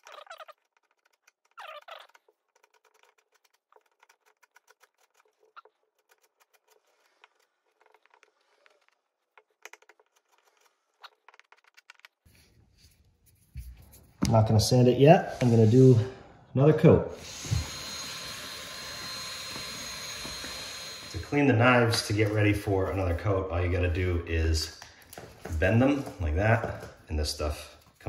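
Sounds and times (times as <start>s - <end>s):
chisel scraping filler: 17.2s - 24.2s.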